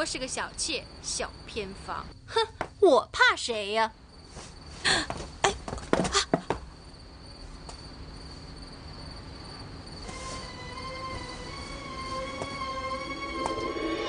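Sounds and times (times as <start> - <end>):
crickets chirping: 0.0 - 14.0.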